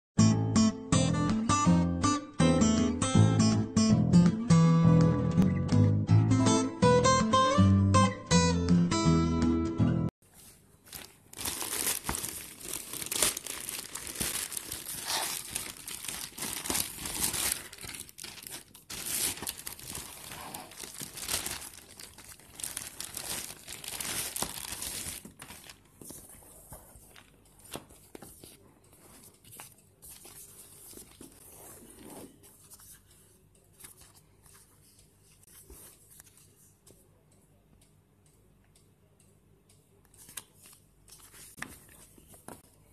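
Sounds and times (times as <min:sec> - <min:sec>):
faint rustling and handling: 0:10.2 - 0:36.9, 0:40.2 - 0:42.9
plastic bag tearing and crinkling: 0:10.9 - 0:25.8.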